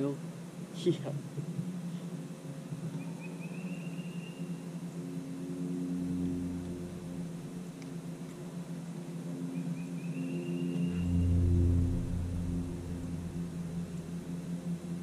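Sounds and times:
low motor hum: 4.5s - 15.0s.

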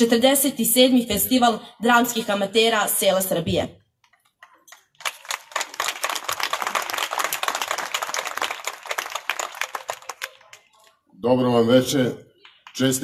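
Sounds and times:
small crowd applauding: 4.4s - 11.1s, 12.3s - 13.0s.

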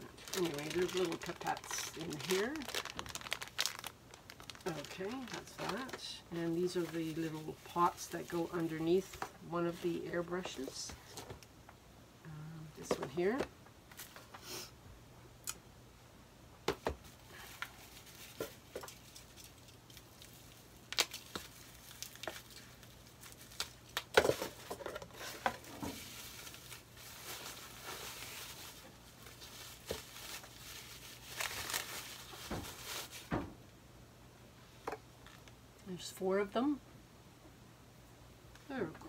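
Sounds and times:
plastic wrapping crinkling and tearing: 0.0s - 9.8s, 17.0s - 33.3s.

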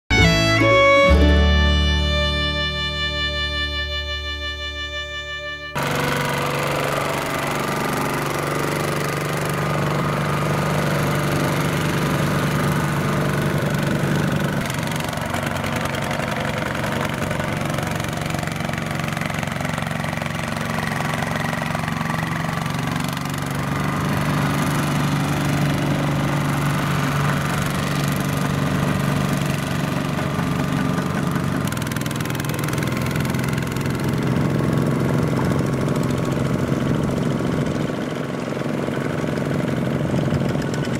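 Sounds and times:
diesel tractor engine running: 0.1s - 40.9s.

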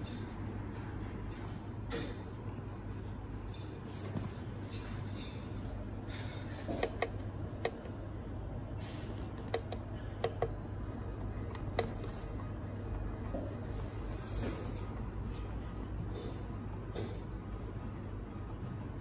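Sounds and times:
steady low hum: 0.0s - 19.0s
push buttons clicking: 6.6s - 8.0s, 8.8s - 12.3s.

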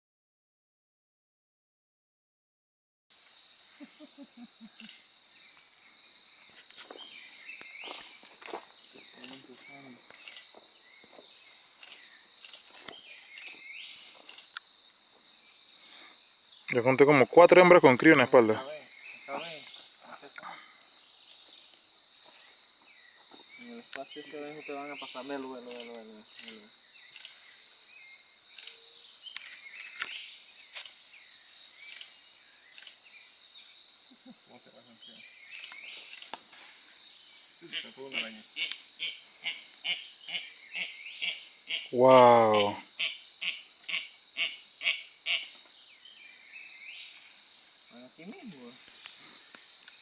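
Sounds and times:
high-pitched insect chorus: 3.1s - 50.0s
sharp clicks: 28.5s - 31.0s.

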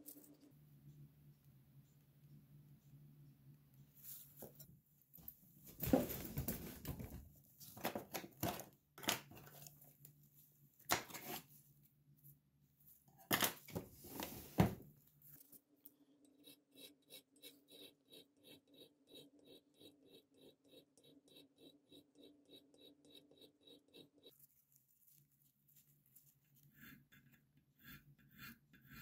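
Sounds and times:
file rasping on metal: 16.4s - 24.3s, 26.7s - 29.0s.

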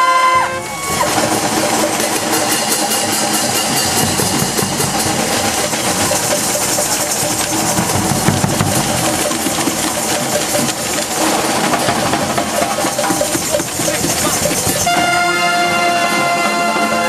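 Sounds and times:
drums and cymbals: 0.0s - 17.0s
wind instruments holding notes: 0.0s - 17.0s.

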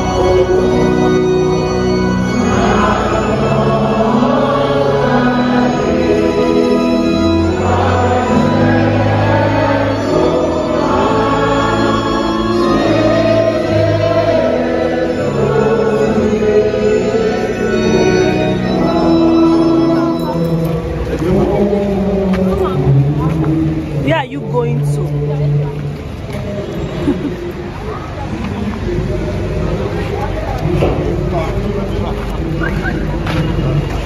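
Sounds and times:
congregation singing a hymn: 0.0s - 24.0s
organ playing sustained chords: 0.0s - 34.0s.

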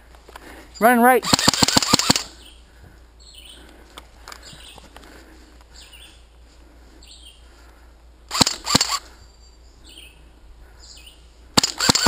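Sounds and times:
airsoft gun shots: 1.2s - 2.3s, 8.3s - 9.0s, 11.6s - 12.0s
birds chirping faintly: 2.2s - 8.3s, 9.0s - 11.6s.

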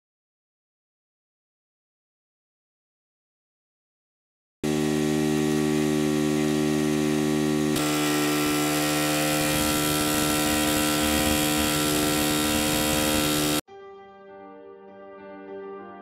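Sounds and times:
single-cylinder engine running: 4.6s - 13.6s.

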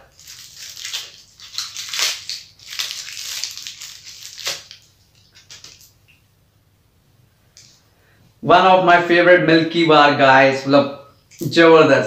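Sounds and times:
foil wrapper crinkling: 0.0s - 6.0s.

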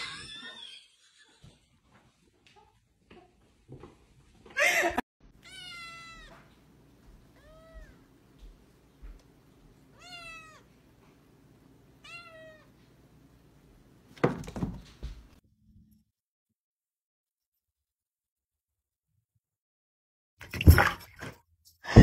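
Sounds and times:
kitten meowing: 5.4s - 6.4s, 7.4s - 8.0s, 10.0s - 10.6s
thumps and clattering: 14.2s - 15.4s, 20.4s - 21.4s.

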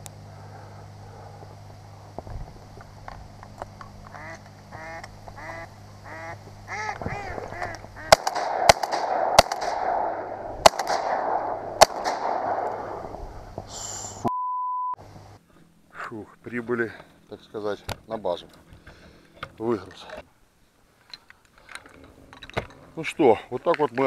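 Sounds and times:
ducks quacking: 4.1s - 8.3s
shotgun shots: 8.0s - 13.6s
steady beep: 14.2s - 15.0s.

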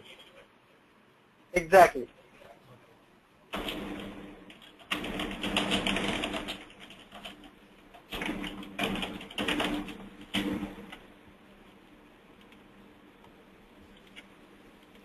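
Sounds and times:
computer keyboard typing: 3.5s - 11.1s, 12.3s - 15.0s.

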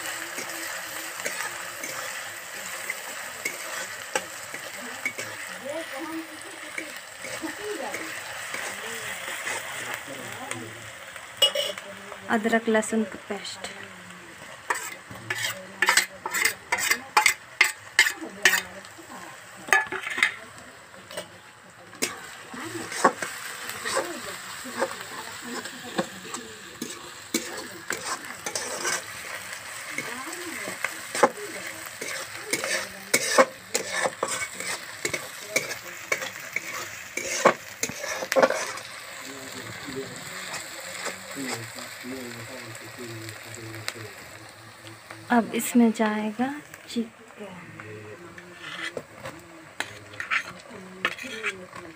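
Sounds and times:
faint sizzling in oil: 0.0s - 51.9s
metal spoon scraping and clinking: 0.3s - 5.5s, 11.4s - 11.8s, 14.7s - 18.7s, 19.7s - 20.4s, 26.8s - 29.1s, 32.0s - 38.9s, 48.5s - 49.0s, 49.8s - 51.8s.

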